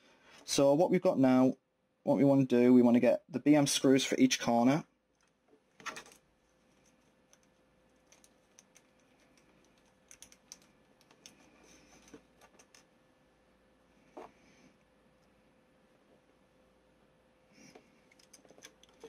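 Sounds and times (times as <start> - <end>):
small plastic parts clicking: 5.2 - 12.9, 18.1 - 19.0.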